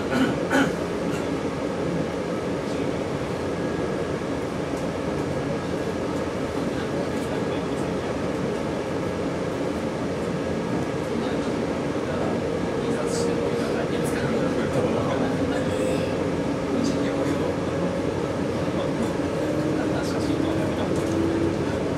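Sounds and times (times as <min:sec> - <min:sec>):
train wheels rumbling on rail: 0:00.0 - 0:21.9.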